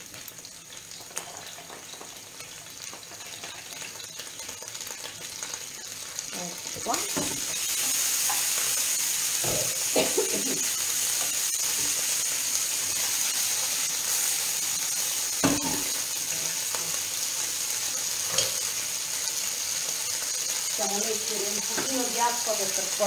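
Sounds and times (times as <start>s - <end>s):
oil sizzling in a frying pan: 0.0s - 23.0s.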